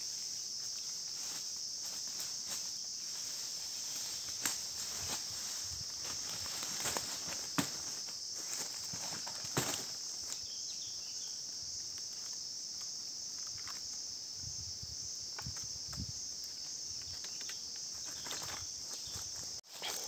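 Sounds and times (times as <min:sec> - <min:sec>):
high-pitched insect chorus: 0:00.0 - 0:20.0
dry leaves crackling underfoot: 0:00.6 - 0:10.5.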